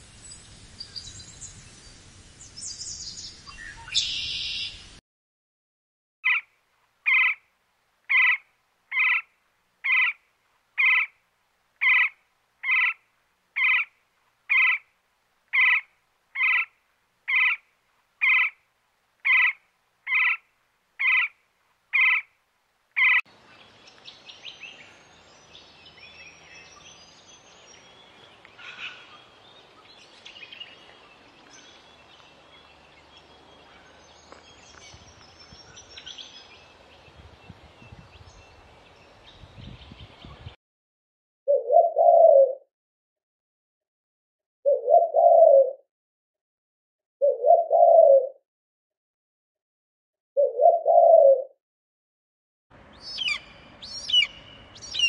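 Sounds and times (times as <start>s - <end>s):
bird chirps: 0.2s - 4.9s, 8.1s - 10.2s, 10.8s - 11.1s, 11.8s - 13.0s, 13.6s - 13.9s, 14.5s - 14.8s, 15.5s - 18.6s, 19.2s - 20.4s, 21.0s - 22.3s, 23.0s - 40.5s, 52.9s - 55.0s
woodpecker call: 3.5s - 4.8s, 6.3s - 7.5s, 8.1s - 10.2s, 10.8s - 11.2s, 11.8s - 13.0s, 13.6s - 14.9s, 15.5s - 18.6s, 19.2s - 22.3s, 23.0s - 23.2s, 53.0s - 55.0s.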